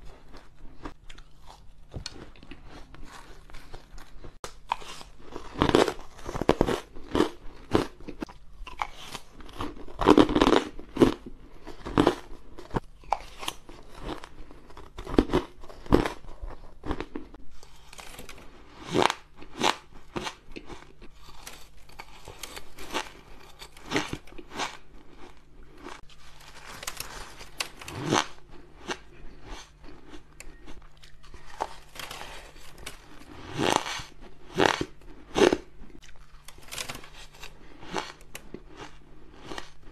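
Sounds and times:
shaved ice being crunched: 0:31.1 - 0:39.8.

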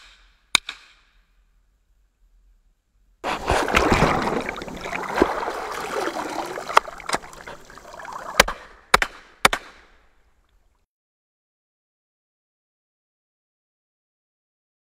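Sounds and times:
water splashing and sloshing: 0:03.2 - 0:08.8.

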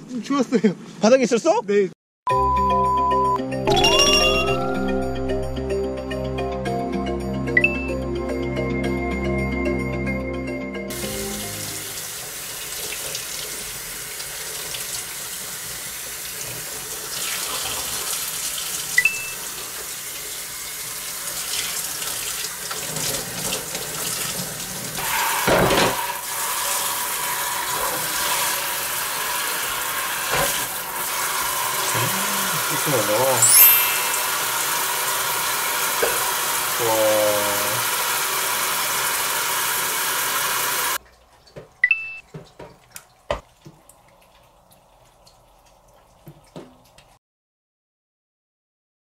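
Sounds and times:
short piece of music: 0:02.3 - 0:06.9
tap running into metal sink: 0:30.2 - 0:30.7.

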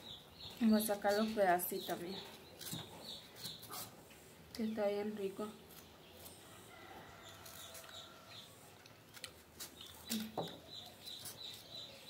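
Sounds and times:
small bird chirping: 0:00.0 - 0:03.9, 0:09.2 - 0:12.0.

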